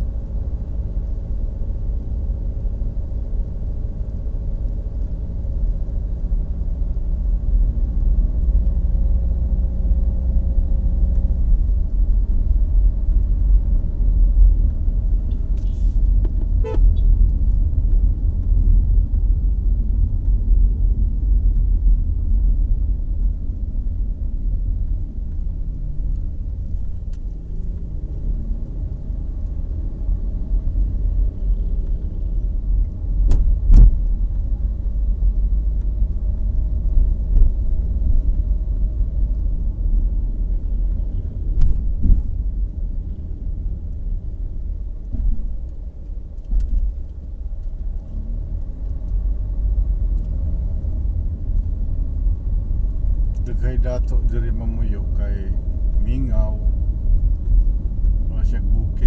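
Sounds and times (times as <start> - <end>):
engine and tyre rumble: 0.0 - 59.0
loud thump: 33.3 - 34.0.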